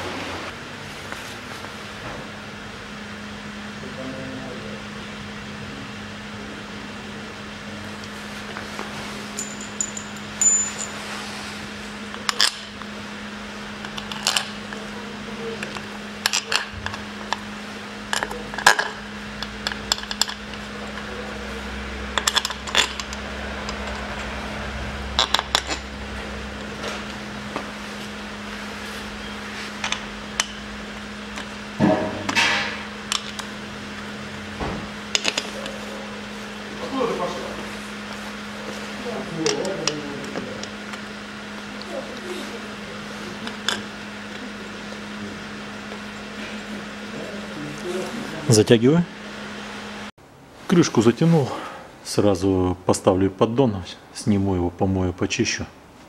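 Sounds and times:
low background hum: 0.0s - 56.0s
metal bolts clinking: 9.4s - 11.0s.

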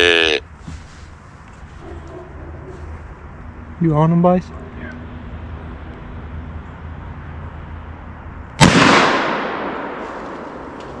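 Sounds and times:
rifle shot with echo: 8.6s - 10.8s.

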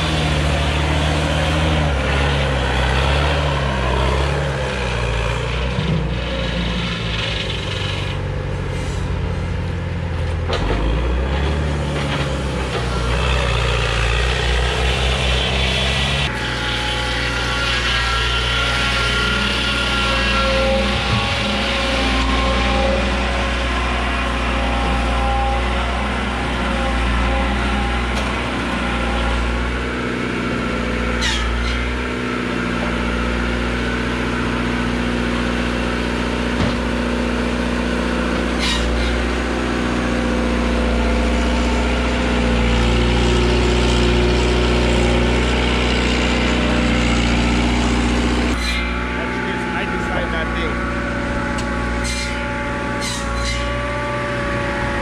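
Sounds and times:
large engine running steadily: 0.0s - 55.0s.

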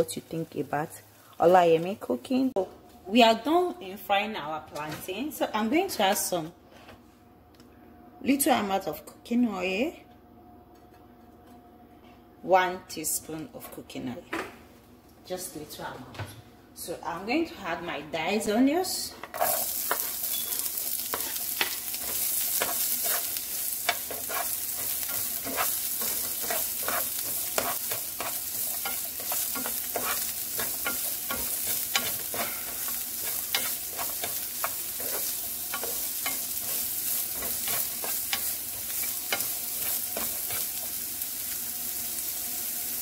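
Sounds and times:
onions sizzling in a frying pan: 0.0s - 2.5s, 18.8s - 43.0s
utensil scraping and tapping a pan: 21.1s - 36.8s.

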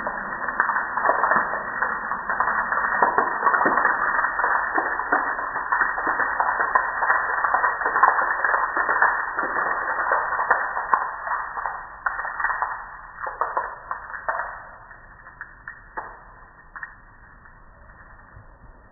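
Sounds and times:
water spray spattering on window: 0.0s - 14.8s.

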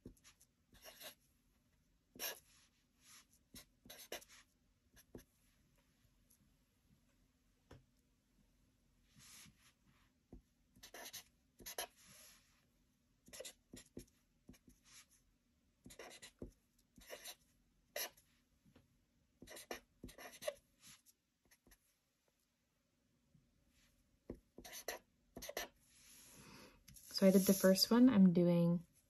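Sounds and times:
pen scratching on paper: 0.0s - 1.3s, 2.2s - 5.3s, 10.8s - 12.4s, 13.3s - 15.2s, 15.8s - 18.3s, 19.4s - 21.8s, 24.6s - 25.8s, 27.0s - 27.8s.

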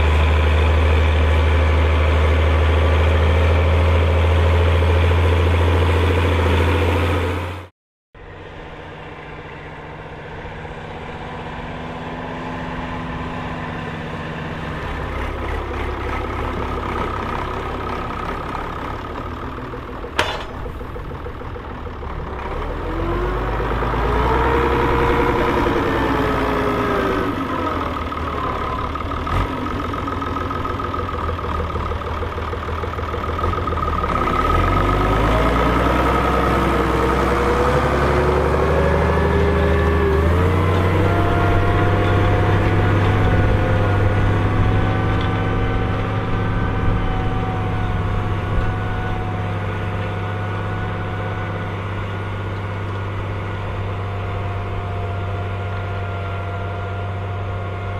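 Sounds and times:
tractor diesel engine working hard: 0.0s - 57.9s.

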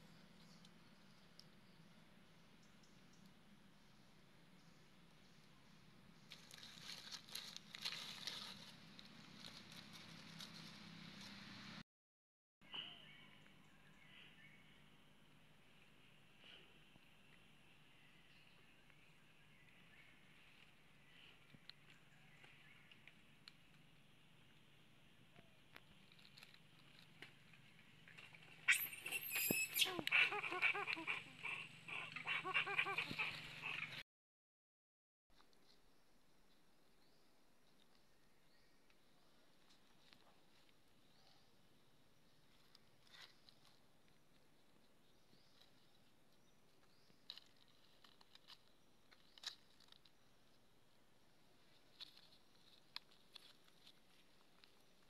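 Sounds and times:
monkey calls: 28.7s - 34.0s.

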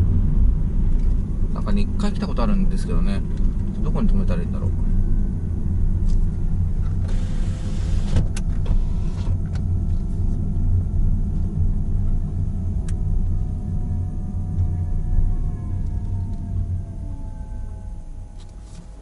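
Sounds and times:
car engine and tyre rumble: 0.0s - 19.0s
brief hiss: 7.0s - 9.3s.

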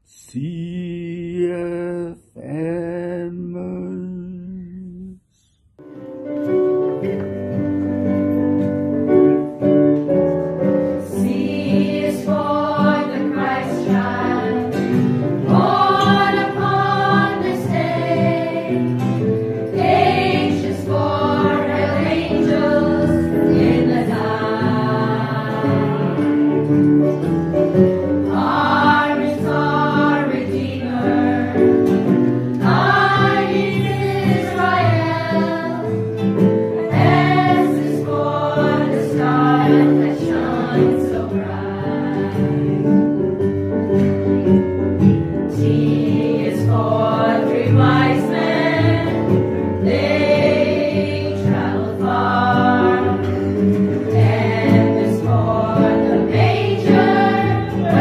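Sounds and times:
choir singing a carol: 11.0s - 26.8s, 28.2s - 43.1s, 45.4s - 58.0s.

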